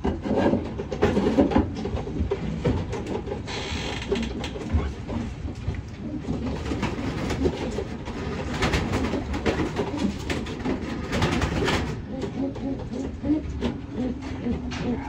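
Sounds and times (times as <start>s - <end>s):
pigeons cooing: 4.6s - 15.0s.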